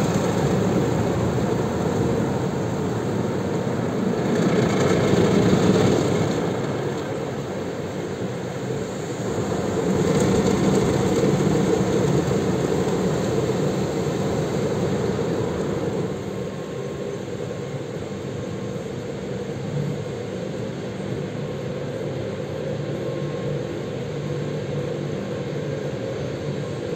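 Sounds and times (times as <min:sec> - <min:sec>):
car wash machine drone: 0:00.0 - 0:26.9.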